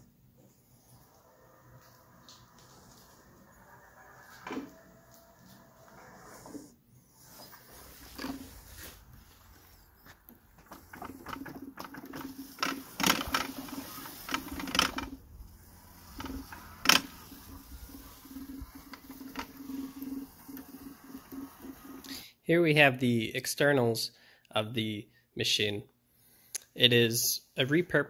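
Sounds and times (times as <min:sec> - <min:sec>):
electric motors whining: 0:07.7 - 0:22.1
sharp clicks and knocks: 0:10.3 - 0:15.2.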